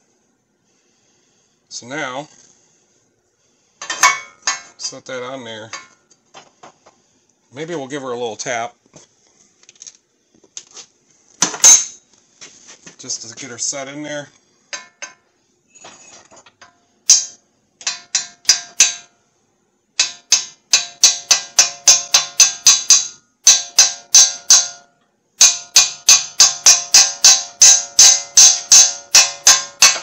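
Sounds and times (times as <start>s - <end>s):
hammer tapping metal: 3.8s - 4.8s, 5.7s - 6.0s, 11.4s - 12.0s, 14.7s - 15.3s, 16.6s - 19.2s, 20.0s - 30.0s.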